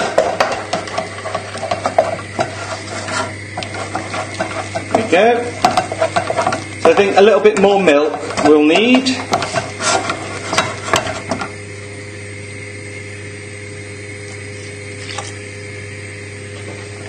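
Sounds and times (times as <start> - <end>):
wooden spoon scraping a saucepan: 0.0 - 11.5
spoon knocking against pan: 0.1 - 2.6, 3.6 - 11.4.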